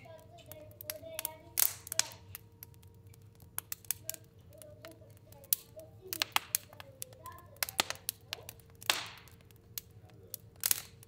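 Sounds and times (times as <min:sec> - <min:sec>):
fire crackling and popping: 0:00.0 - 0:11.0.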